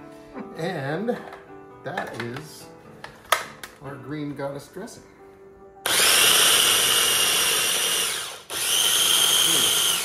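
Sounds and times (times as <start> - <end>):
food chopper motor whine: 5.8 - 10.0.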